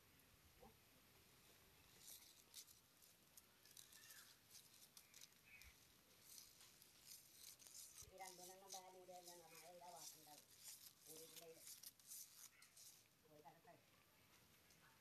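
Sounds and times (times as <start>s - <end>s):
faint scratchy ticks: 2.0s - 13.1s.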